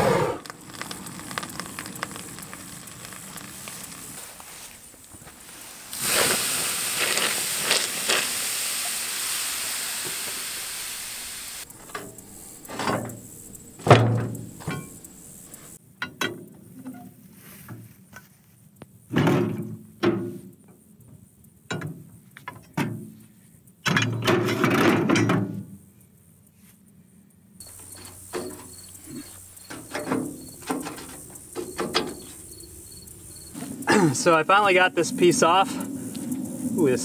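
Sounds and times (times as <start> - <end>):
insects chirping: 0.0 - 24.7, 25.4 - 37.0
metal tools clanking and scraping: 13.8 - 15.0, 27.8 - 32.4.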